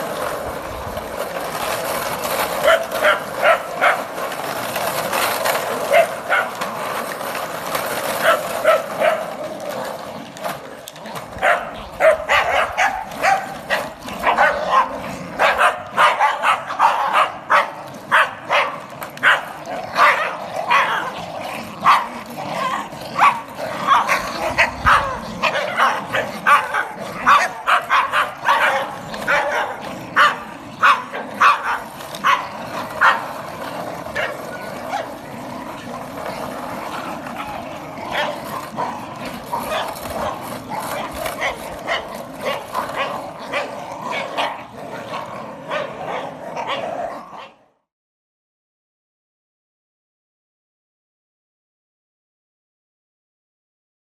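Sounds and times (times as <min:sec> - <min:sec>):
small dogs barking: 0:02.5 - 0:04.4, 0:05.5 - 0:06.7, 0:08.2 - 0:09.7, 0:11.3 - 0:36.4, 0:37.2 - 0:47.6.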